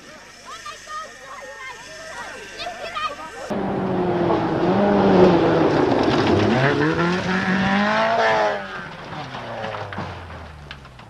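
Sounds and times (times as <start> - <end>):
tyres rushing on gravel: 0.0 - 11.0
rally car engine revving hard: 3.5 - 10.8.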